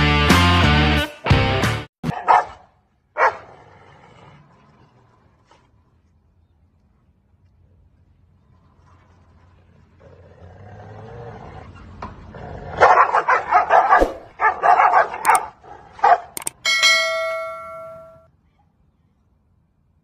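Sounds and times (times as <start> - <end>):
dogs snarling and barking: 2.0 - 6.0, 8.8 - 16.4
sharp clicks: 15.2 - 15.4, 16.4 - 16.6
bell-like notification chime: 16.6 - 18.3.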